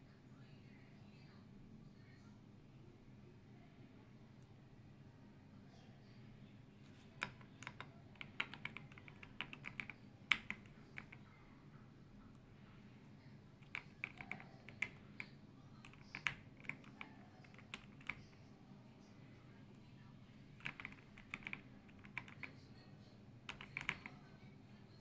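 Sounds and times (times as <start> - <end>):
mechanical keyboard key clacks: 23.5 - 24.1.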